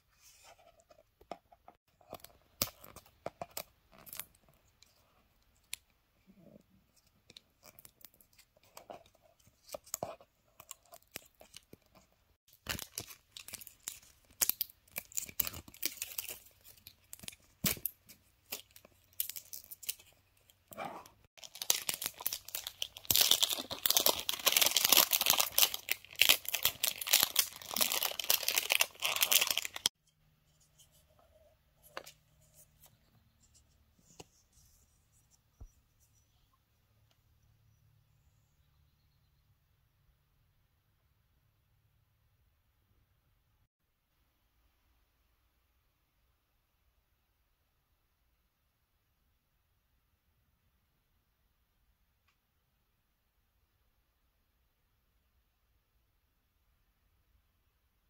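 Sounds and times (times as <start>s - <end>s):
plastic wrap crinkling and tearing: 12.5s - 20.1s, 21.4s - 29.9s.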